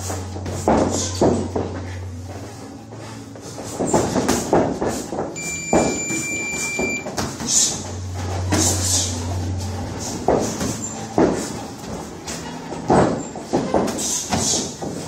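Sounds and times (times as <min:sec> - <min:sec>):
steady electronic beep: 0:05.4 - 0:07.1.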